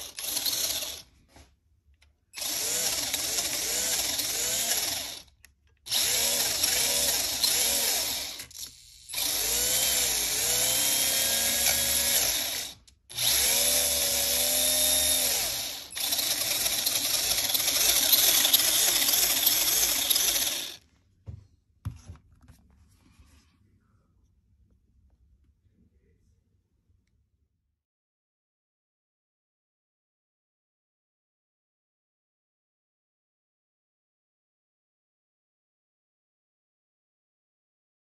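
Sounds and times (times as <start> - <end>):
small electric motor whining: 0.0 - 1.1, 2.4 - 5.3, 5.9 - 20.8.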